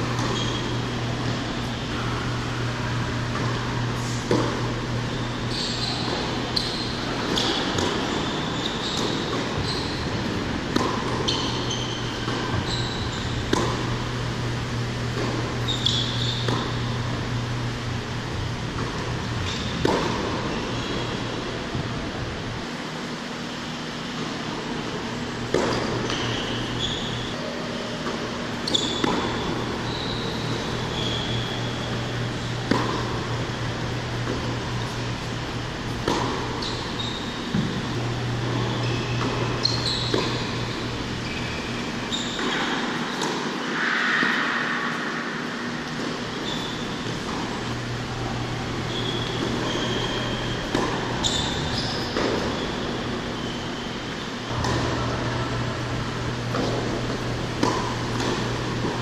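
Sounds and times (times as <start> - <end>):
ball bouncing: 0.0 - 2.2, 3.2 - 14.3, 15.0 - 17.0, 18.6 - 21.0, 25.5 - 27.3, 28.0 - 35.1, 35.9 - 41.5, 48.9 - 53.6, 54.5 - 55.6, 56.2 - 59.0
racquet hitting ball: 0.0 - 21.2, 25.5 - 59.0
shoes squeaking on court: 0.0 - 21.6, 22.6 - 59.0.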